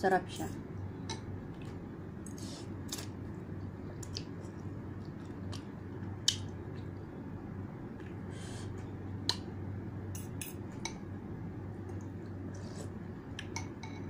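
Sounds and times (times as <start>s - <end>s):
slurping and chewing: 12.5s - 13.0s.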